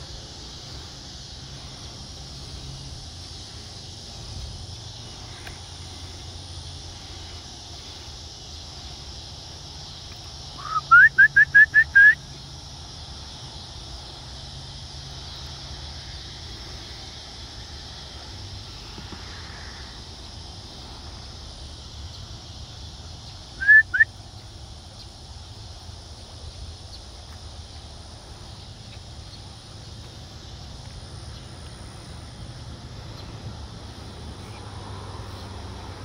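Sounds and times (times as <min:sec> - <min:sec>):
steady outdoor hiss: 0:00.0 - 0:36.0
short rising whistled notes: 0:10.6 - 0:12.2, 0:23.6 - 0:24.1.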